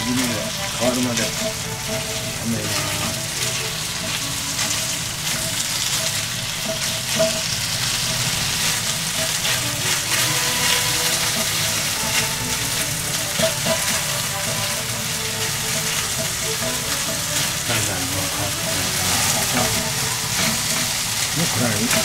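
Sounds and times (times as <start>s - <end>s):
chopsticks stirring: 0.0s - 22.0s
meat sizzling in a frying pan: 0.0s - 22.0s.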